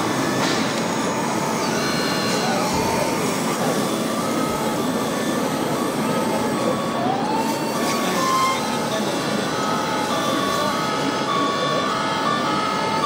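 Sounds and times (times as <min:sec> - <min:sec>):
busy exhibition hall din: 0:00.0 - 0:13.0
siren-like gliding tone: 0:01.1 - 0:13.0
short electronic tones: 0:07.9 - 0:08.8.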